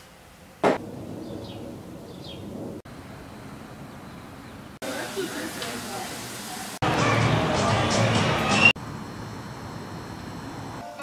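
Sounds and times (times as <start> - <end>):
steady background noise: 0.0 - 11.0
steady outdoor hum: 0.0 - 11.0
sharp knock: 0.6 - 0.8.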